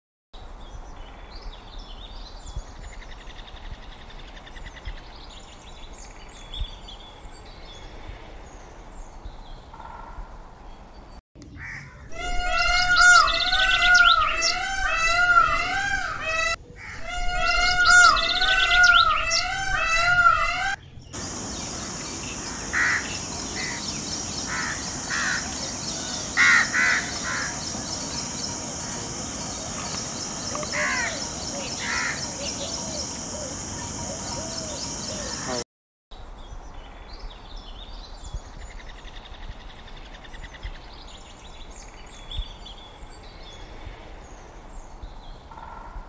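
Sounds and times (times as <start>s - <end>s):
peacock calling: 11.5s - 35.6s
small birds chirping: 12.1s - 35.6s
high insect hiss: 17.0s - 35.6s.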